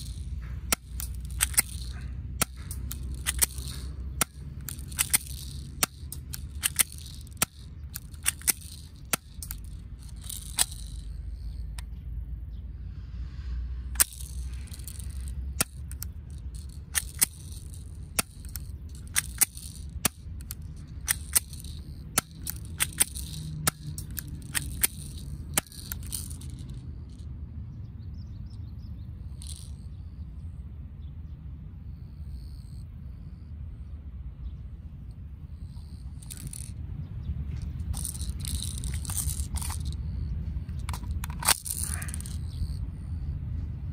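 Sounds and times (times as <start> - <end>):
pistol slide scraping: 0.0 - 11.8, 14.0 - 26.8, 37.5 - 42.8.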